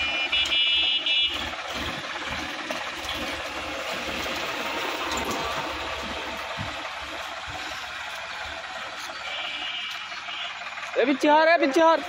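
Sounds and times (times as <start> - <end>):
tractor diesel engine running: 0.0 - 12.0
water and mud churning: 0.1 - 10.0
high horn-like tone: 9.2 - 10.6.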